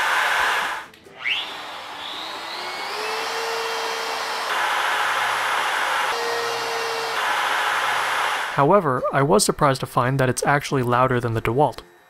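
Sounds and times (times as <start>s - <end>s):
router motor whining: 0.0s - 8.6s.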